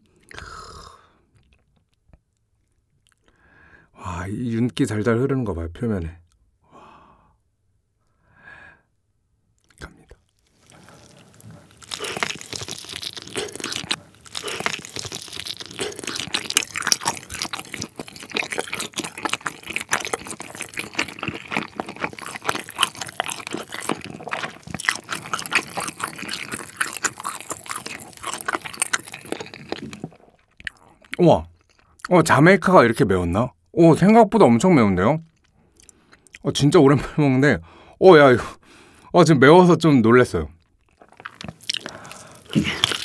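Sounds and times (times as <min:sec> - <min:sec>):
chewing chicken with wet crackles: 0:09.6 - 0:32.1, 0:40.6 - 0:43.0.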